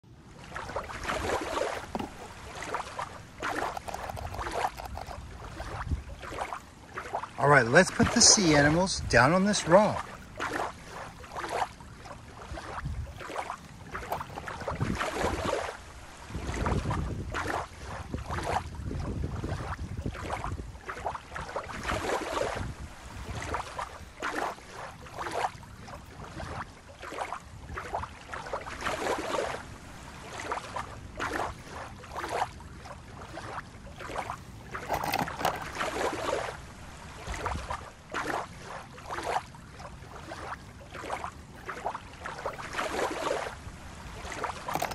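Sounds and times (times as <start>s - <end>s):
small waves lapping: 0.1s - 44.9s
wind on microphone: 3.3s - 6.6s, 12.5s - 24.2s.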